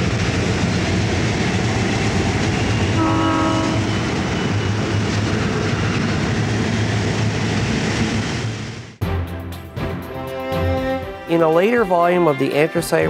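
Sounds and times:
locomotive engine rumble: 0.0s - 9.0s
train horn blast: 2.9s - 4.2s, 10.1s - 11.4s.

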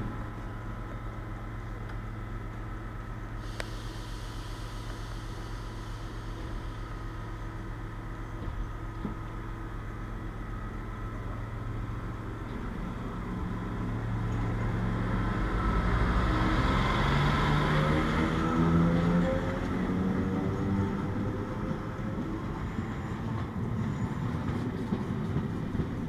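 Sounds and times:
electric train hum: 0.0s - 26.0s.

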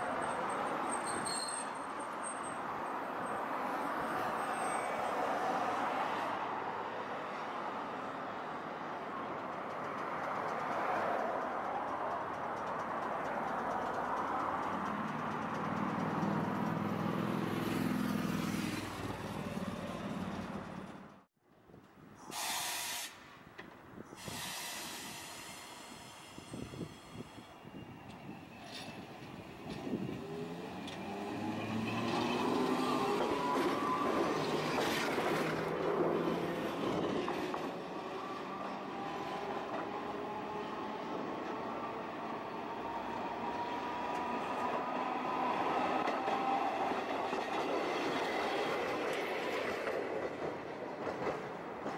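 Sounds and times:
streetcar wheels on rails: 0.0s - 51.9s
hiss: 22.2s - 23.3s, 24.1s - 27.6s
car passing: 30.0s - 40.6s.

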